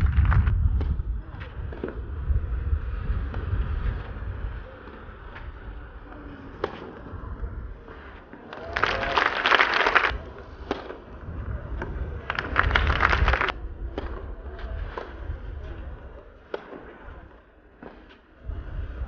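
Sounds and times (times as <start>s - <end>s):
spectators clapping: 0.0s - 0.5s, 8.4s - 11.0s, 11.8s - 13.6s.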